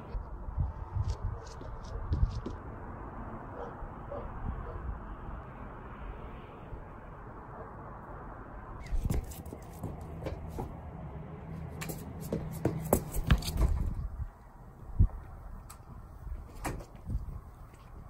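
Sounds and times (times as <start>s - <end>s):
quick footsteps: 8.8s - 11.0s, 11.6s - 14.1s.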